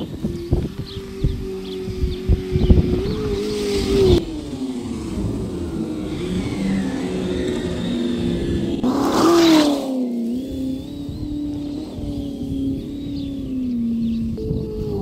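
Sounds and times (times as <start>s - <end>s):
simulated engine revving: 0.0s - 15.0s
toy truck sweeping past: 1.5s - 13.0s.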